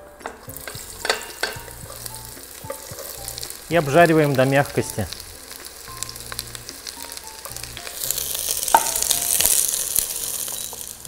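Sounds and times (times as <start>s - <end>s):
vegetables sizzling in oil: 0.0s - 11.0s
spatula scraping pot: 0.2s - 4.1s.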